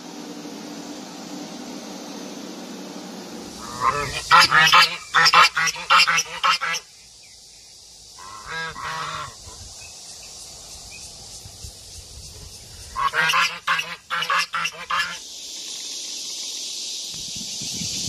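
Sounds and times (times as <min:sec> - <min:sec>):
geese honking: 0:03.6 - 0:06.8, 0:08.2 - 0:09.6, 0:13.0 - 0:15.2.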